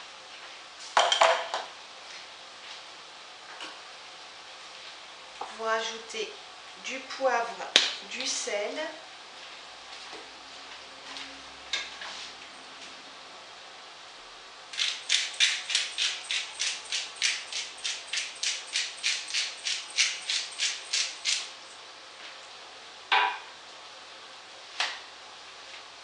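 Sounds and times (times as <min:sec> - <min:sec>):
pepper mill grinding: 0:14.7 - 0:21.8.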